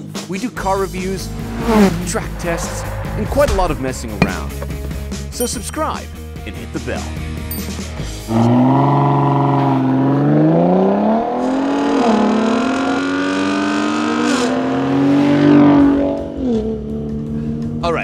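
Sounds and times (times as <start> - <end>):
truck engine accelerating: 0.4 - 14.2.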